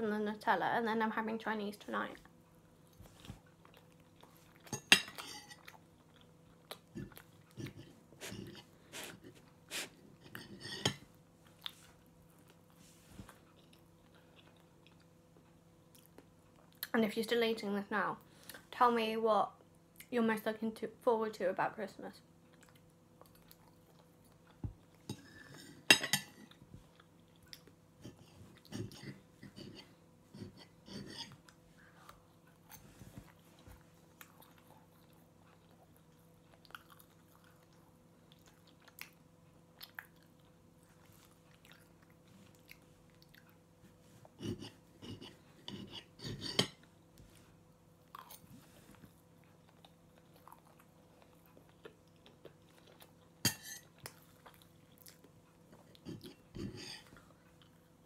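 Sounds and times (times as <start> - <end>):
quiet chewing: 2.2 - 17.0, 22.3 - 58.0.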